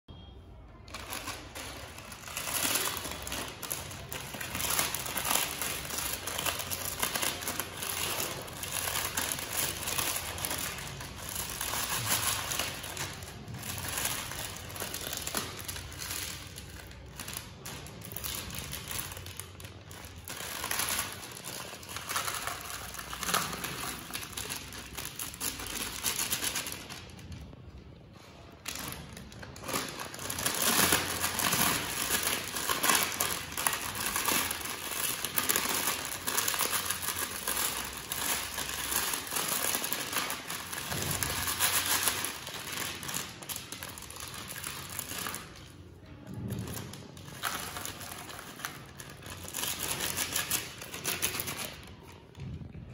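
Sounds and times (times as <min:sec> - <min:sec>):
plastic packets crinkling: 0:00.8 - 0:52.4.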